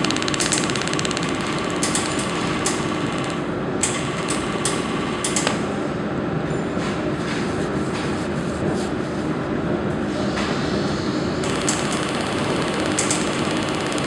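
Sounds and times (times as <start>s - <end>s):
sharp high-pitched clicks: 0.0s - 5.6s, 11.4s - 14.0s
welding machine hum: 0.0s - 5.7s, 11.4s - 14.0s.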